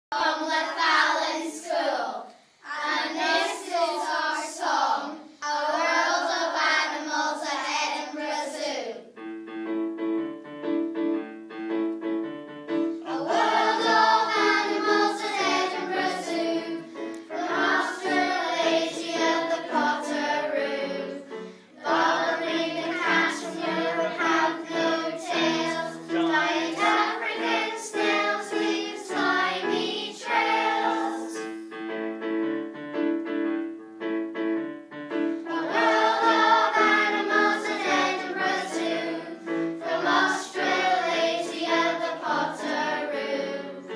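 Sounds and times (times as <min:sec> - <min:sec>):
children's choir singing: 0:00.1 - 0:09.2, 0:12.8 - 0:31.7, 0:35.2 - 0:43.9
keyboard accompaniment: 0:09.0 - 0:43.9.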